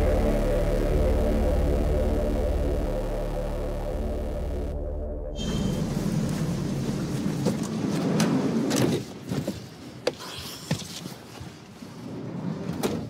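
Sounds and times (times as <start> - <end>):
vehicle and street rumble: 0.0 - 9.3.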